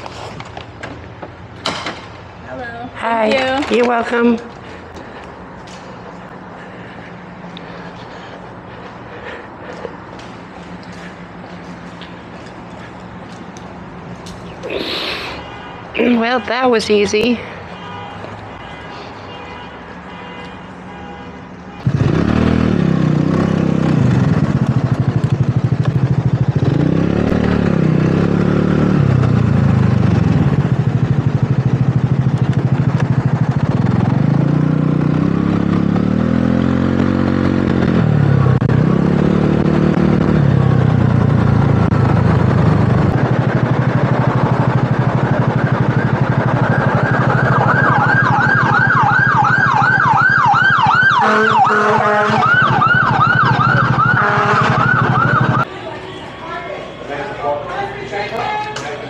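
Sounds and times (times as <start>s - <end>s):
scooter engine revving: 21.8s - 48.9s, 51.6s - 55.7s
emergency siren yelping: 45.8s - 55.7s.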